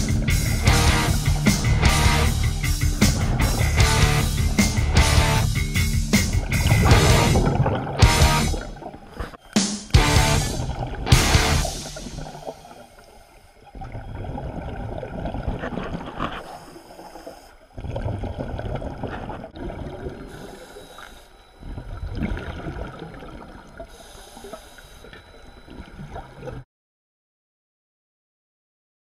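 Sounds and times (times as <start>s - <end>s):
diver exhaling bubbles underwater: 0.0s - 9.3s, 10.0s - 12.9s, 13.6s - 20.7s, 21.6s - 23.9s.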